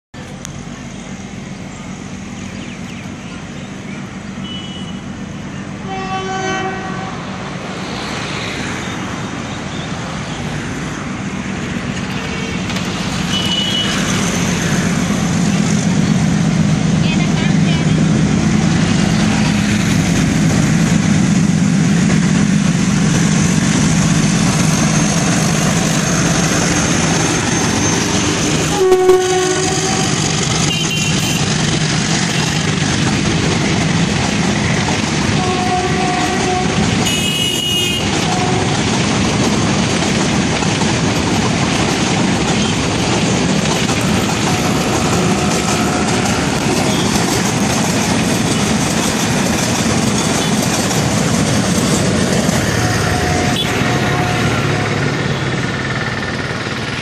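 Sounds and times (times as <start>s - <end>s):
diesel locomotive engine: 0.1s - 57.0s
train coaches clickety-clack: 0.2s - 57.0s
locomotive horn: 5.8s - 7.4s, 13.3s - 14.2s, 28.6s - 31.6s, 35.3s - 39.0s, 44.3s - 47.1s, 52.5s - 55.3s.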